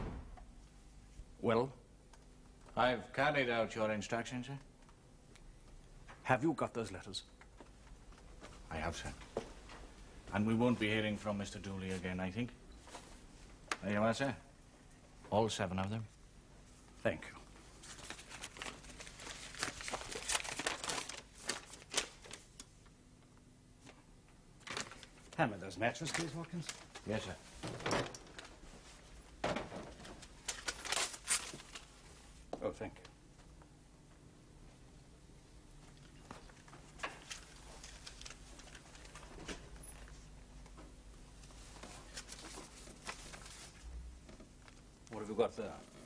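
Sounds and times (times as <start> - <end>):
low room hum: 0.0 - 46.0
paper rustling: 17.8 - 22.7, 24.6 - 25.4, 26.0 - 29.1, 29.7 - 32.0, 36.4 - 40.2, 41.4 - 43.9.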